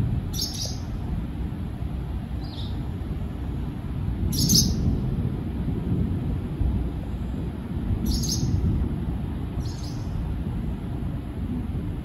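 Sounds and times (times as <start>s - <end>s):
bird chirps: 0.3s - 0.9s, 2.4s - 2.8s, 8.1s - 8.6s, 9.6s - 10.2s
rolling thunder: 4.0s - 12.0s.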